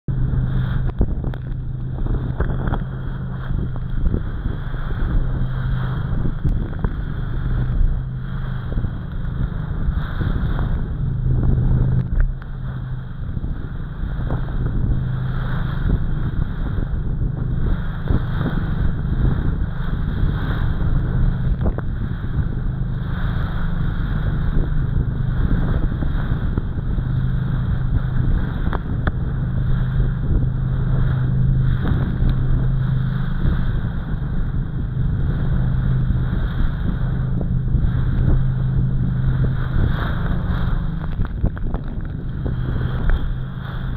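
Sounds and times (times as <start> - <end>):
hull slapping waves: 0.0 - 43.9
motorboat engine drone: 0.0 - 43.9.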